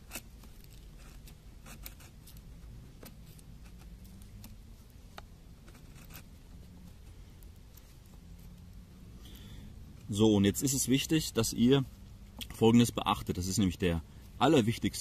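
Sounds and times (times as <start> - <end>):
knife blade carving wood: 0.0 - 4.6
low steady rumble: 0.0 - 15.0.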